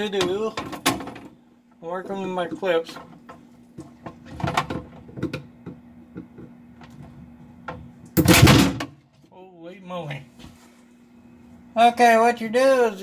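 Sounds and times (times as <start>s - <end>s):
loud plastic clatter: 3.8s - 5.4s, 8.2s - 9.0s.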